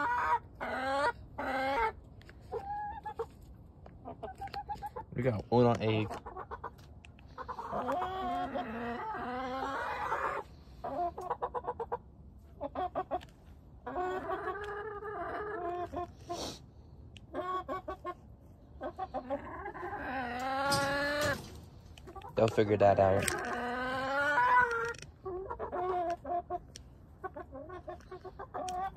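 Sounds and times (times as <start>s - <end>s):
chickens calling: 0.0s - 28.9s
chickens clucking: 0.0s - 28.9s.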